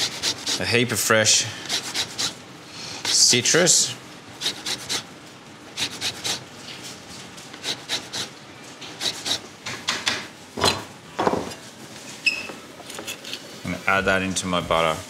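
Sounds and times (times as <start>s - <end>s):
grater scraping lemon: 0.0s - 0.7s, 1.6s - 2.4s, 3.0s - 3.3s, 4.4s - 5.1s, 5.8s - 6.4s, 7.6s - 9.4s.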